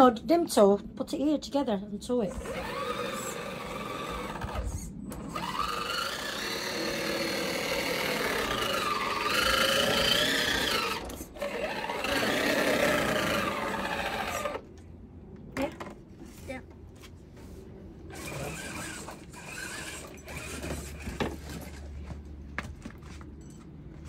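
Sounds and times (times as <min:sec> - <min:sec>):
toy car electric motor whine: 0:02.3 - 0:14.6, 0:18.1 - 0:21.2.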